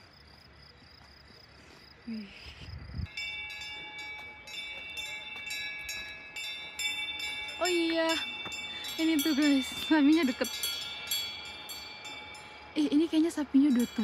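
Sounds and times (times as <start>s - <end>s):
cowbells ringing and clanking: 3.1s - 14.0s.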